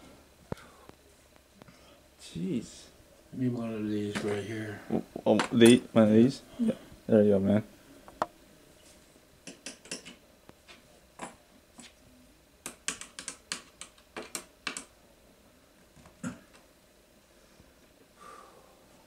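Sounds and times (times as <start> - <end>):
screwdriver tapping metal: 9.4 - 10.2.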